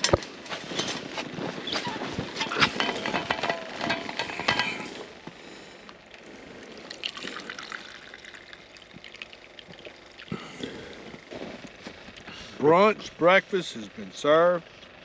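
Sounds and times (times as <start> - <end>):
handling knocks and clinks: 0.0 - 5.1
coffee pouring into cup: 6.2 - 10.4.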